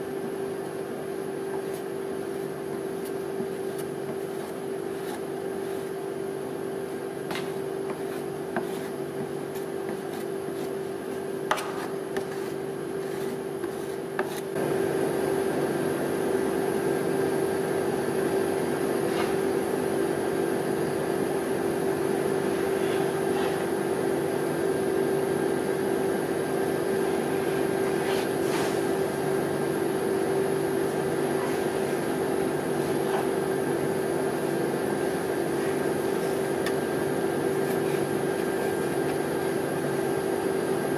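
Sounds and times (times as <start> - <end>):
refrigeration unit humming: 0.0 - 40.9
knife and spatula scraping plate: 7.3 - 10.8, 11.5 - 14.6, 22.7 - 23.7, 37.6 - 39.6.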